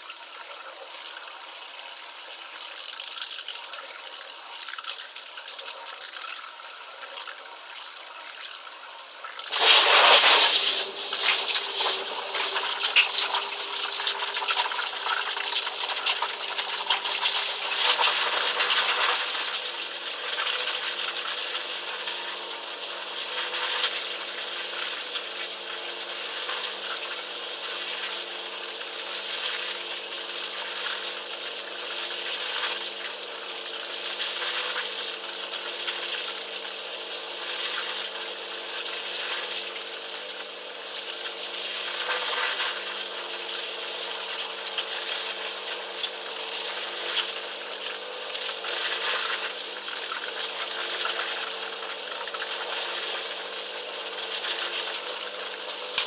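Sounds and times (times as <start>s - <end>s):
steady electrical hum: 0.0s - 27.2s
water spraying in dishwasher: 9.3s - 56.0s.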